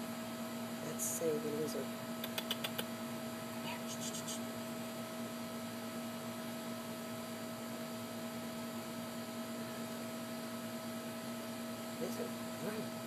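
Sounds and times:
room tone hum: 0.0 - 13.0.

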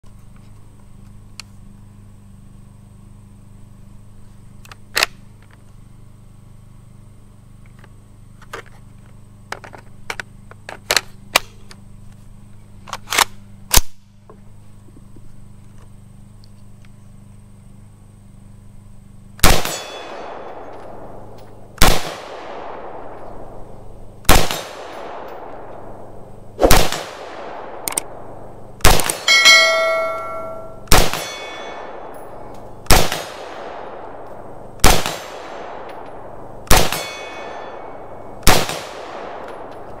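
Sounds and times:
rifle shots with echo: 19.4 - 21.2, 21.8 - 23.6, 24.2 - 32.1, 32.9 - 34.2, 34.8 - 39.7
steel targets ringing: 19.6 - 20.4, 29.0 - 32.5, 36.8 - 38.2.

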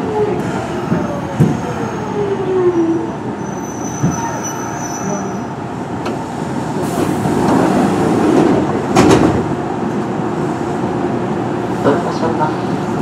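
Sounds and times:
train running noise: 0.0 - 13.0
high squeal: 3.0 - 5.5.

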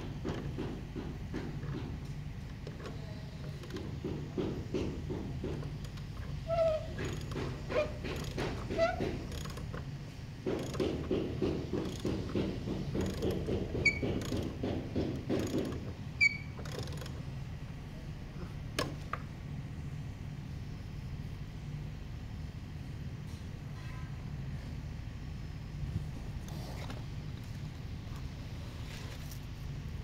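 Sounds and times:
steady low hum: 0.0 - 30.0
hand ratchet clicking: 6.8 - 9.8, 10.4 - 17.2.

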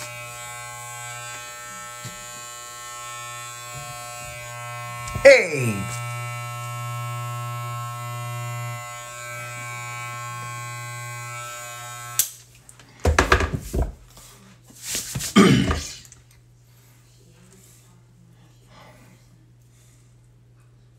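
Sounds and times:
electric hair clipper buzzing: 0.0 - 12.4.

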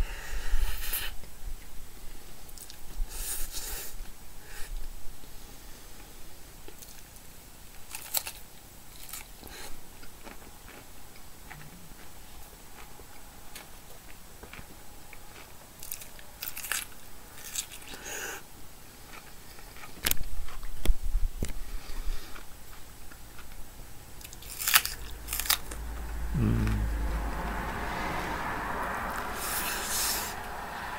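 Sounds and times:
chewing and crunching food: 2.4 - 3.0, 5.9 - 25.8.

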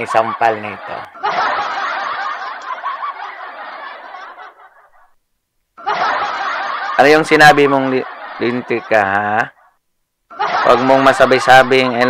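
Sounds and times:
shrill laughter: 5.8 - 11.1.

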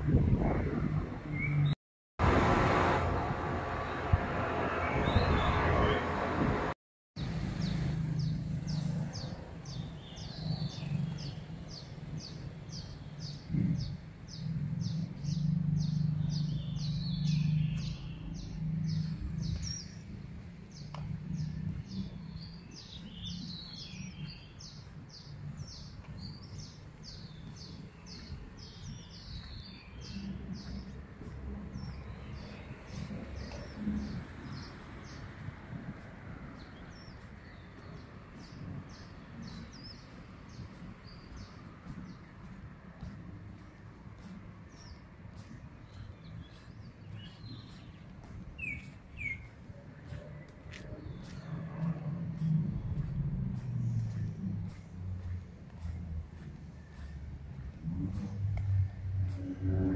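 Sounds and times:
bird chirps: 7.2 - 20.1, 43.0 - 53.2.

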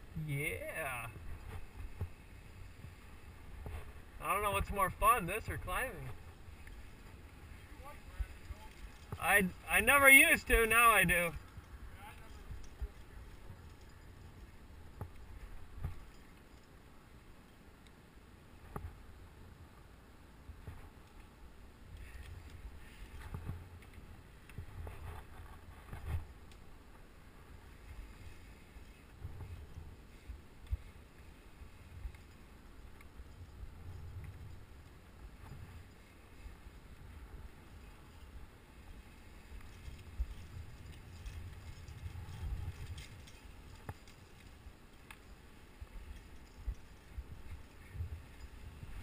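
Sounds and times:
wind rumbling on microphone: 0.0 - 16.5, 20.4 - 49.0
climbing gear clicks: 6.3 - 9.2, 11.3 - 16.9, 39.0 - 49.0.

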